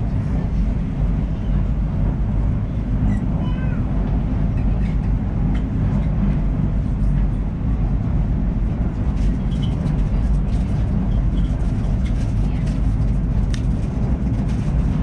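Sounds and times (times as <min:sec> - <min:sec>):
low rumble of vehicle noise: 0:00.0 - 0:15.0
faint voices: 0:09.0 - 0:15.0.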